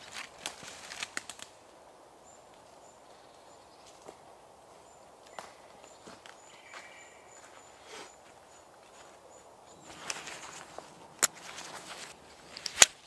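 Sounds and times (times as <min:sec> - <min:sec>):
jacket and strap rustling: 0:07.7 - 0:13.0.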